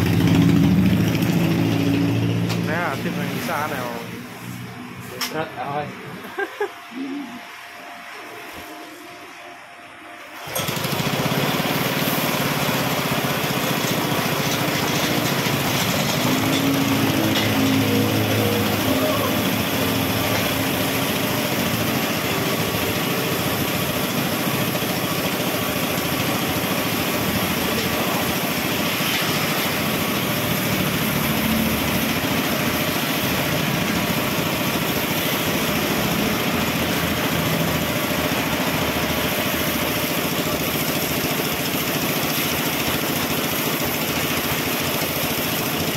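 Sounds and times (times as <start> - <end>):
spin-dryer motor whirring: 10.4 - 45.9.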